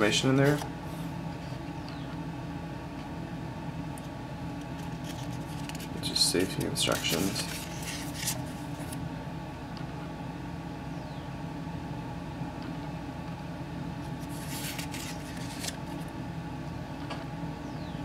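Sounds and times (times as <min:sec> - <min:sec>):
steady low hum: 0:00.0 - 0:18.0
paper pages being turned: 0:00.4 - 0:00.7, 0:04.7 - 0:09.0, 0:14.1 - 0:16.1
paper rustling: 0:04.7 - 0:09.0, 0:14.2 - 0:16.1.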